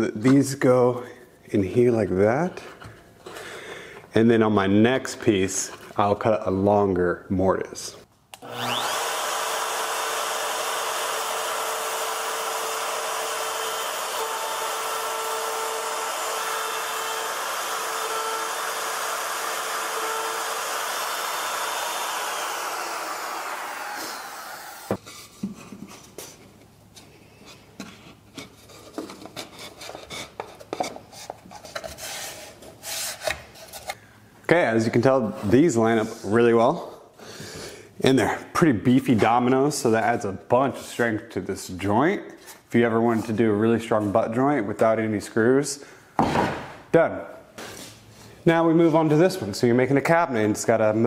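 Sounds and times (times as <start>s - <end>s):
router motor whining: 8.4s - 25.0s.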